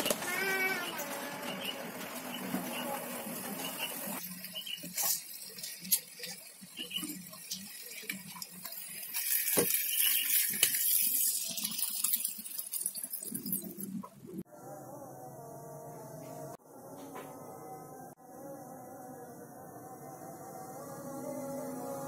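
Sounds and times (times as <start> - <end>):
water pouring into pan: 3.2 - 14.1.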